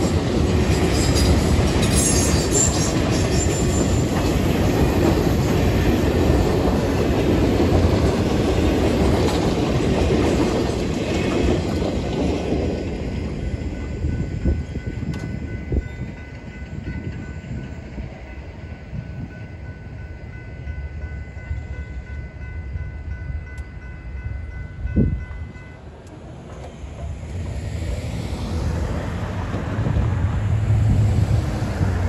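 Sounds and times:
road traffic noise: 25.8s - 32.0s.

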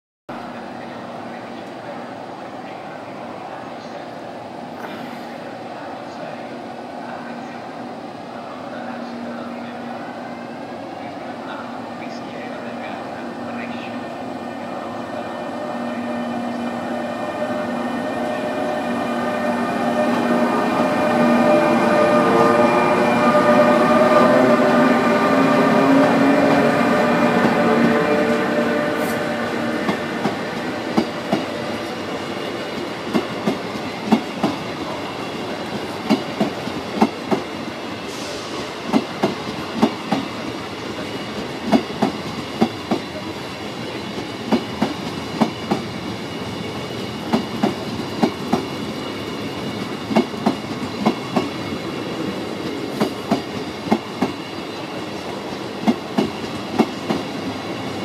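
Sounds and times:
rolling rumble of train: 0.3s - 58.0s
train wheels clickety-clack: 29.8s - 58.0s.

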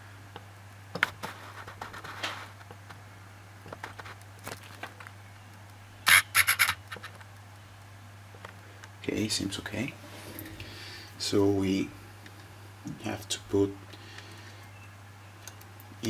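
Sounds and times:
steady low hum: 0.0s - 16.0s
camera handling clicks and rubbing: 6.1s - 7.2s
short scratching scrapes: 6.1s - 7.2s.

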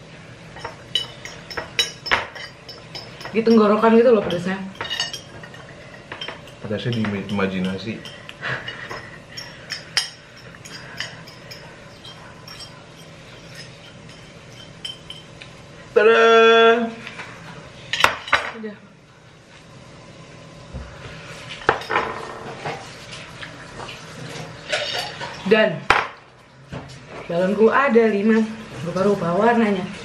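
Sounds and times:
chopsticks tapping on ceramic plates: 0.6s - 15.5s.

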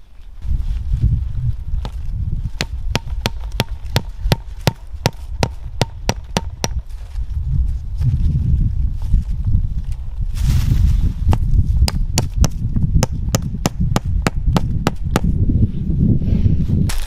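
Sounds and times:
hatchet hammering a stake: 2.6s - 6.8s, 11.3s - 15.4s.

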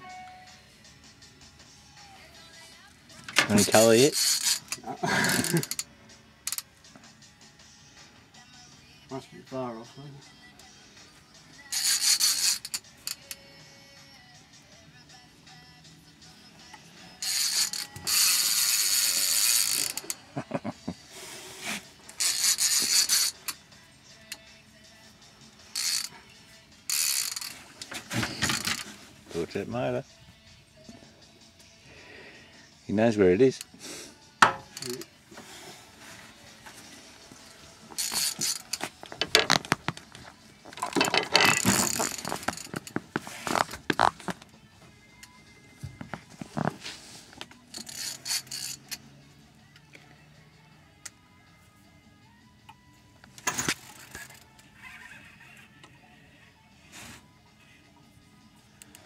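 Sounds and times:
fishing reel drag buzzing: 3.6s - 4.8s, 5.4s - 5.8s, 11.7s - 13.4s, 17.2s - 20.2s, 22.1s - 23.6s, 25.7s - 26.2s, 26.9s - 27.6s, 28.3s - 28.8s, 34.7s - 35.1s, 38.0s - 38.8s, 41.5s - 42.9s, 47.7s - 49.0s.

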